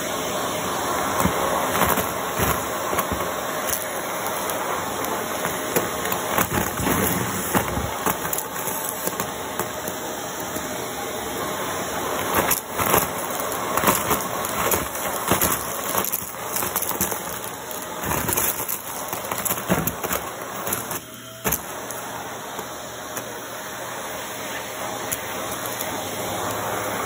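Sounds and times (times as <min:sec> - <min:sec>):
vacuum cleaner running: 0:00.0 - 0:27.0
debris rattling up vacuum wand: 0:00.2 - 0:10.8, 0:11.7 - 0:27.0.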